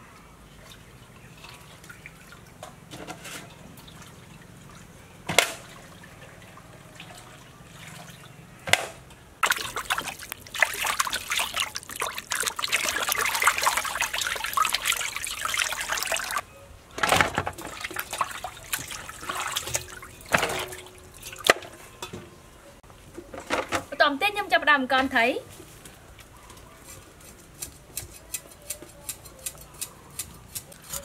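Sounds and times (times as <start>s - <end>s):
water splashing and trickling: 0.4s - 8.5s, 9.4s - 16.4s, 17.1s - 22.0s.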